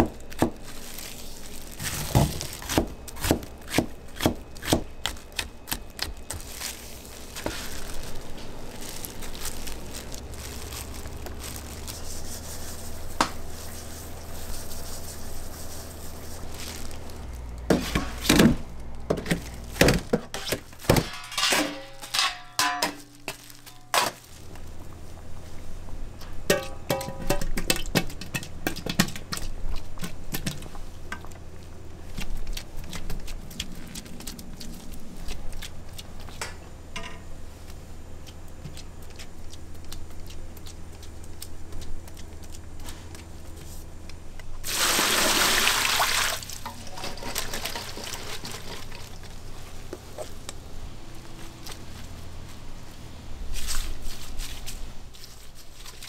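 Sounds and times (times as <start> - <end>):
metal pan clattering: 20.4 - 24.2, 26.5 - 27.8
water gushing into pot: 44.6 - 49.2.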